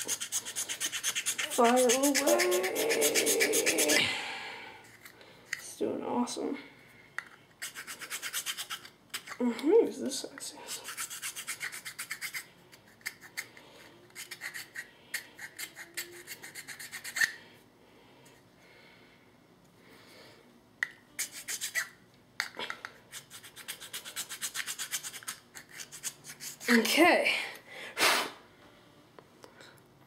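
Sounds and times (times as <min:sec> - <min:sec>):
small file rasping: 0:00.0 - 0:04.0, 0:07.6 - 0:09.4, 0:10.7 - 0:13.5, 0:14.1 - 0:17.4, 0:21.2 - 0:22.0, 0:23.1 - 0:26.8.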